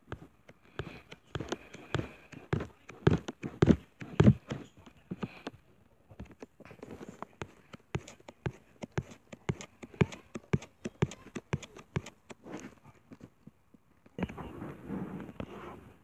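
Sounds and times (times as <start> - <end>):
irregular clicks and taps: 0.0 - 5.6, 6.2 - 13.2.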